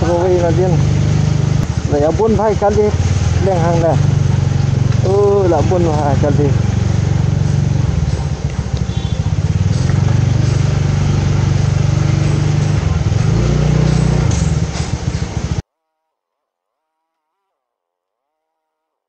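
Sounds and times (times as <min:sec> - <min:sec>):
motorcycle engine running slowly: 0:00.0 - 0:15.6.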